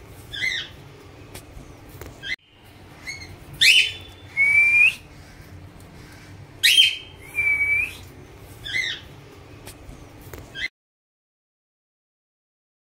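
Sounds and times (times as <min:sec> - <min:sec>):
cockatiel whistling: 0:03.0 - 0:05.0, 0:06.6 - 0:08.0
bird warbling call: 0:03.0 - 0:05.5, 0:06.6 - 0:07.8.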